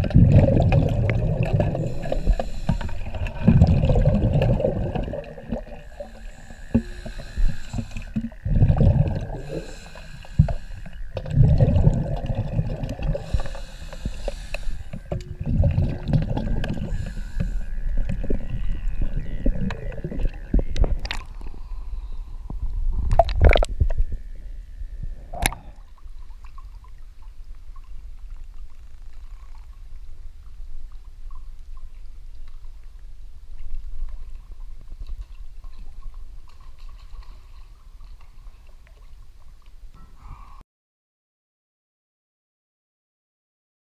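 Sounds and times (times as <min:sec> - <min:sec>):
underwater regulator bubbles: 0:00.0 - 0:21.8, 0:22.5 - 0:24.3.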